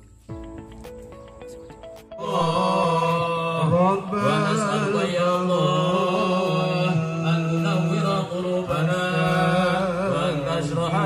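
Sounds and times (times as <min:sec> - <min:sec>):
devotional chanting over loudspeaker: 0:02.2 - 0:11.0.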